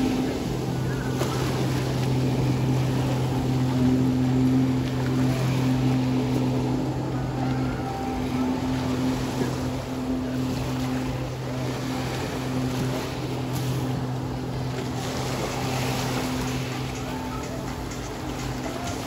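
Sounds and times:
boat engine hum: 0.0 - 19.0
sea: 0.0 - 19.0
wind: 0.0 - 19.0.

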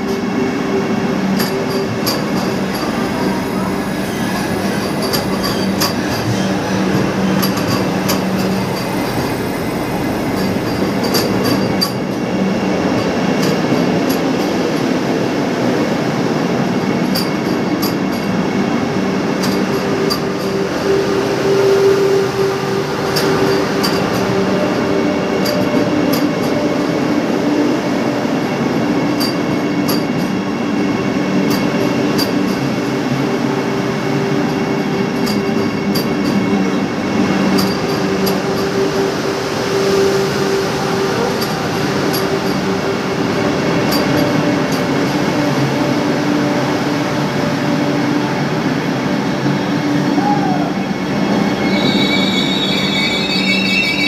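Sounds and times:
train rolling rumble: 0.0 - 54.0
high steady tone: 19.4 - 27.6.

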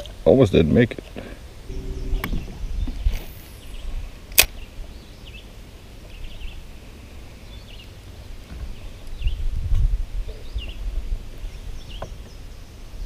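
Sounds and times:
wind rumbling on microphone: 1.6 - 5.4, 8.6 - 12.0
faint high chirps: 1.7 - 4.2.

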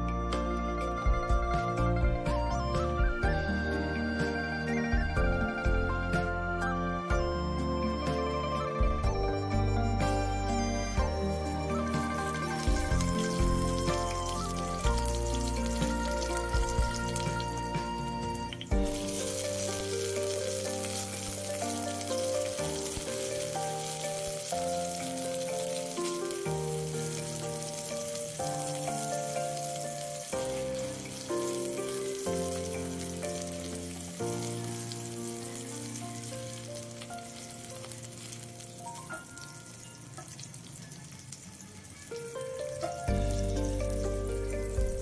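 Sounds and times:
onions sizzling in hot oil: 10.0 - 45.0.

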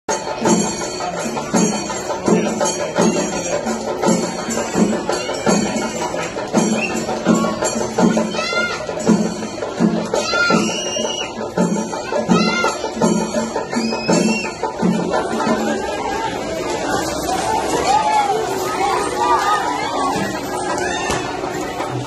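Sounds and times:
jingling cymbal-like layer: 0.1 - 16.5
drum beat: 0.1 - 17.1.

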